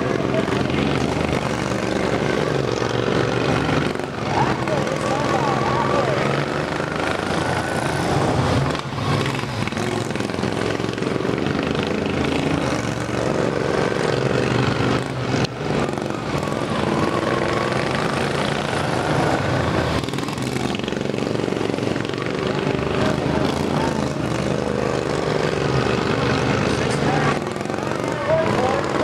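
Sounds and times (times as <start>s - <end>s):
lawn mower engines racing: 0.0s - 29.0s.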